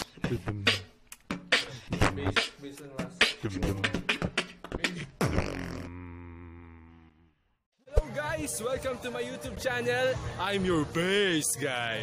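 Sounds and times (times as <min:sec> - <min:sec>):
beatboxing vocal percussion: 0:00.0 - 0:06.9.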